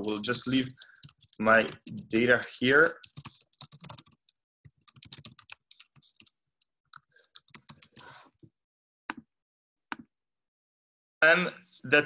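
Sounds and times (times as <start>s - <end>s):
computer keyboard typing: 0.0s - 8.1s.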